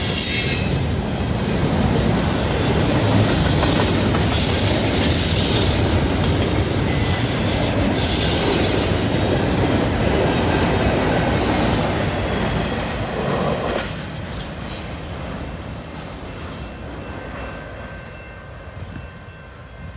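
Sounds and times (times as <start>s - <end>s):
train wheels clattering over rails: 0.0s - 15.1s.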